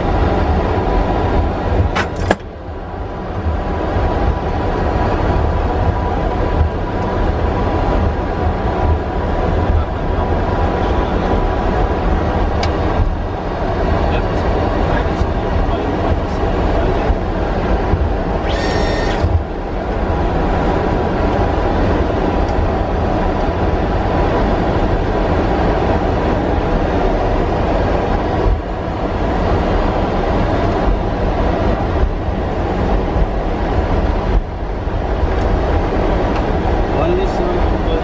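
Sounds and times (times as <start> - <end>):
aircraft cockpit rumble and hiss: 0.0 - 38.0
high-pitched tone: 18.4 - 19.3.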